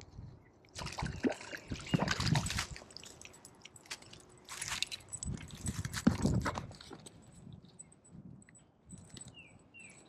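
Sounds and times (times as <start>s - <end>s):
fish flopping in net: 0.8s - 5.0s.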